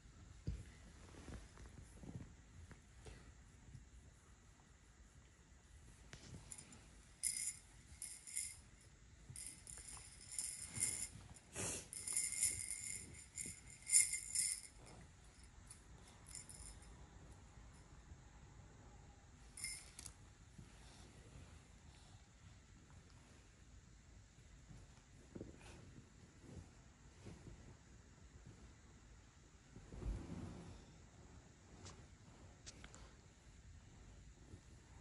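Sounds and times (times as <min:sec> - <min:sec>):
small jingle bell ringing: 0:06.4 - 0:18.0, 0:19.5 - 0:20.2.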